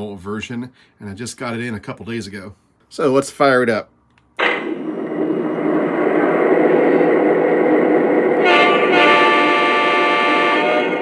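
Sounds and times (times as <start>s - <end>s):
locomotive horn: 8.4s - 11.0s.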